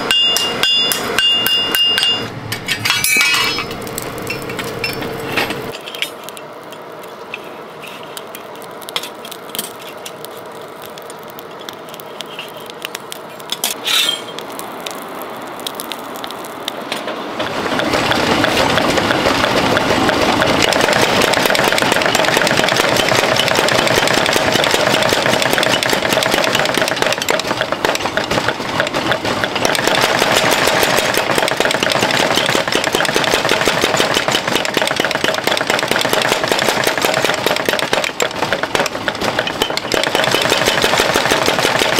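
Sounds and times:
power hammer pounding: 17.4s - 41.9s.

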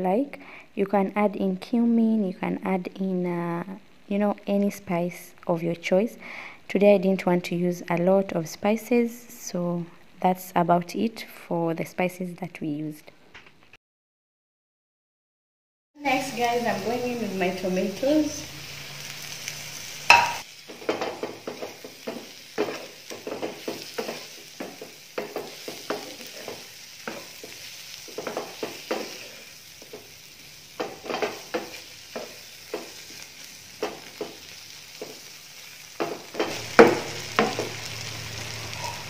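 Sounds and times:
food sizzling: 16.0s - 39.0s
spoon knocking against pan: 20.1s - 27.3s, 36.0s - 37.8s
wooden spoon scraping frying pan: 20.1s - 30.2s, 30.8s - 33.2s, 36.0s - 37.9s.

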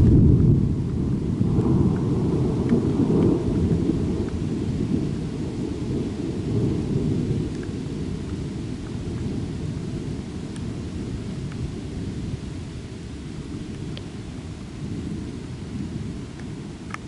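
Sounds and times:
rolling thunder: 0.0s - 12.6s
rain pattering: 0.0s - 17.0s.

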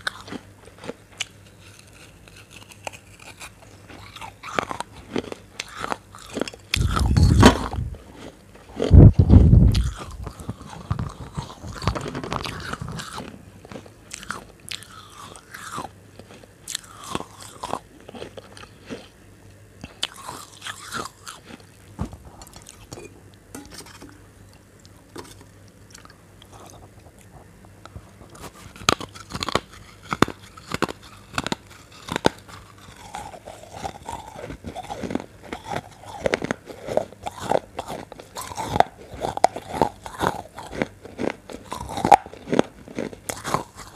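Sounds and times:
crunching bites of clay bowl: 0.0s - 19.1s, 28.2s - 43.9s.

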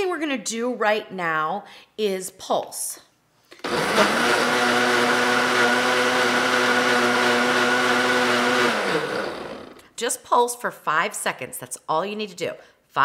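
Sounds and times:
blender motor running: 3.6s - 9.8s.

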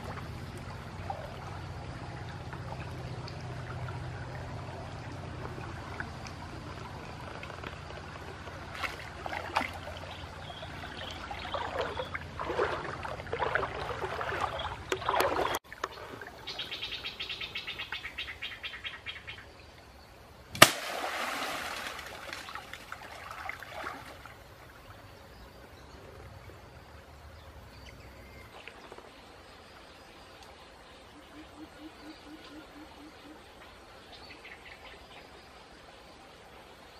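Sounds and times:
water splashing in river: 0.0s - 16.8s, 20.5s - 24.9s
steady outdoor hiss: 0.0s - 36.9s.

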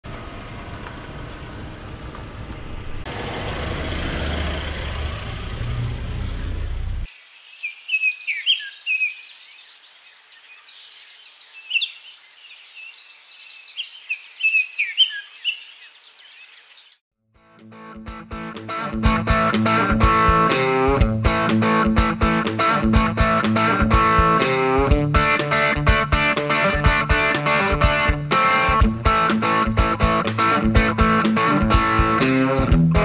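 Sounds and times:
birds chirping: 6.2s - 17.0s.

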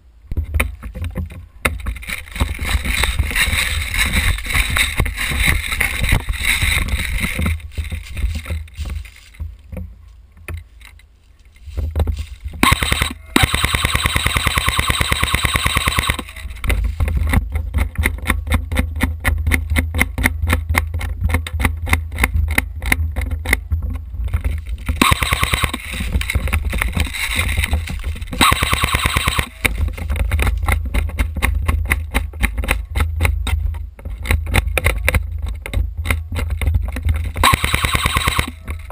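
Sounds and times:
steady low rumble: 0.0s - 32.1s
airsoft gun rapid shots: 12.6s - 16.4s, 25.0s - 26.0s, 28.4s - 29.7s, 37.4s - 38.6s.

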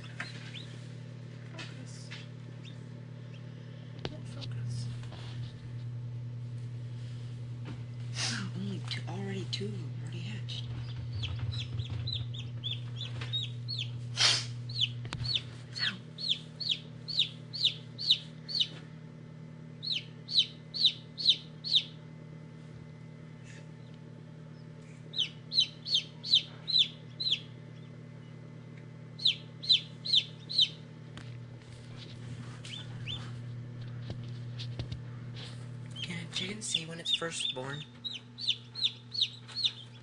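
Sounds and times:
chicks peeping: 0.0s - 0.9s, 2.6s - 3.5s, 10.4s - 14.0s, 14.7s - 18.8s, 19.8s - 22.0s, 23.8s - 28.4s, 29.1s - 30.9s, 32.0s - 34.0s, 35.9s - 40.0s
incubator low hum: 0.0s - 40.0s.

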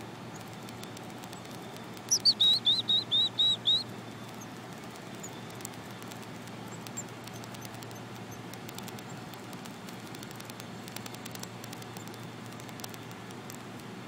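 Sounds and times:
chickadee calling: 0.3s - 9.1s.

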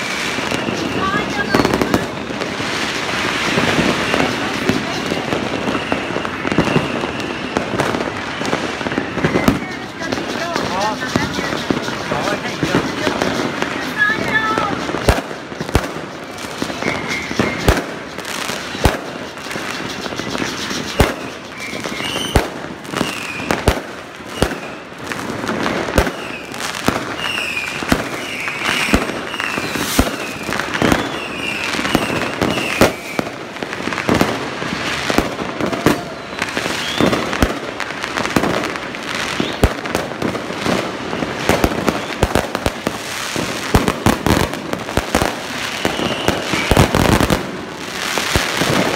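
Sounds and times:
fireworks bangs and crackling: 0.0s - 48.9s.

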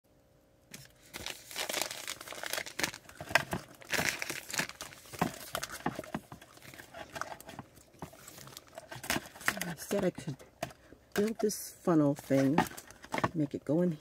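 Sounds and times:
crinkling and rustling: 0.7s - 13.9s.

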